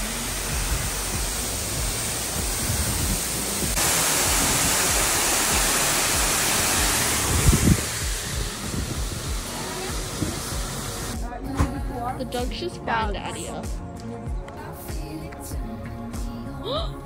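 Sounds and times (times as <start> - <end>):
waterfall rushing and splashing: 0.0 - 11.2.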